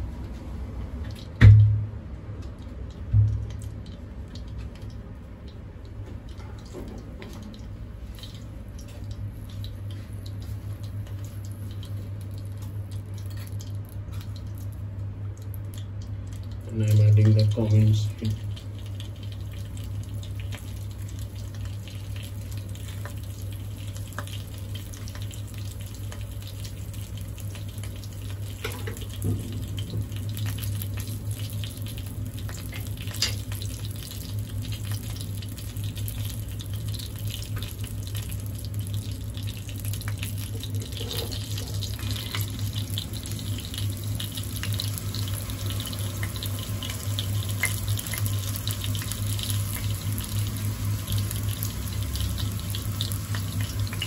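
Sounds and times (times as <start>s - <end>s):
steady low hum: 0.0s - 54.0s
seeds sizzling in hot oil: 16.6s - 54.0s.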